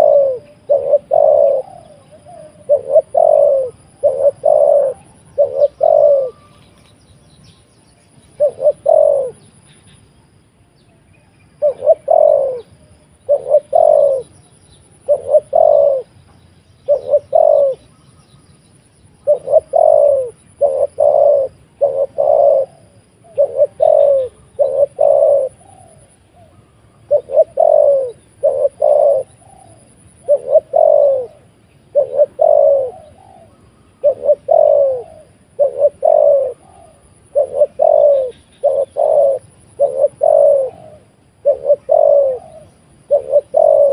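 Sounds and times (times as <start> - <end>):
dove cooing: 0.0 - 6.8, 8.3 - 9.7, 11.5 - 16.2, 16.8 - 18.0, 19.2 - 43.9.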